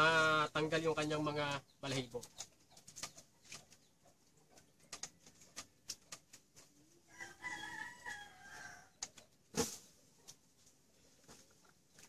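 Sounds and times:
rooster crowing: 7.1s - 8.9s.

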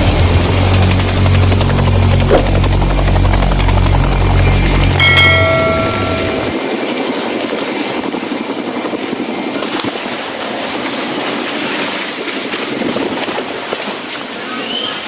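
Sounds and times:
helicopter rotor and engine: 0.0s - 10.8s.

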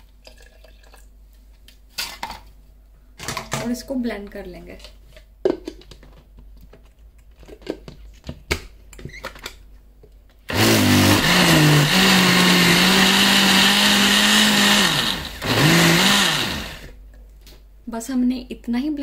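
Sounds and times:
electric blender running: 10.5s - 16.9s.

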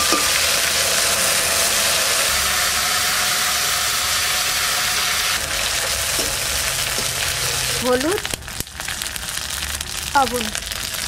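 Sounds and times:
spice paste sizzling in oil: 0.0s - 11.0s.

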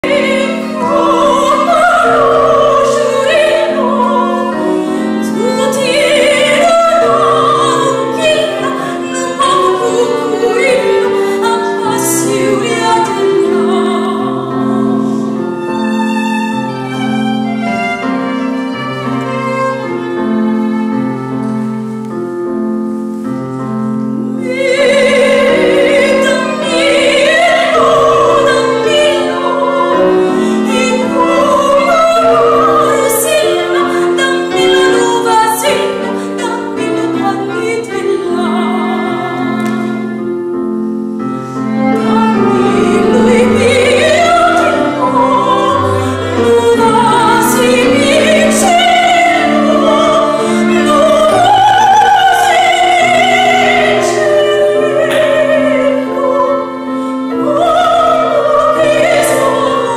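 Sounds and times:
woman singing opera: 0.0s - 17.1s, 24.3s - 40.4s, 41.7s - 59.9s
string ensemble: 0.0s - 59.9s.

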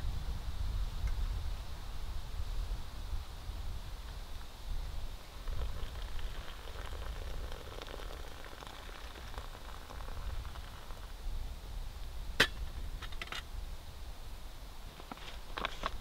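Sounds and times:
hot water pouring into pouch: 5.3s - 11.2s.

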